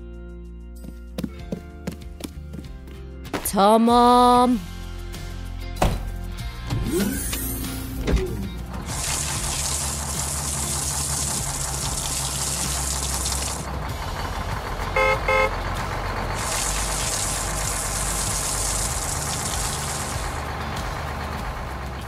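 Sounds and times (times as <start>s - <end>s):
truck engine rumble: 4.8s - 22.0s
horn toots: 14.8s - 15.6s.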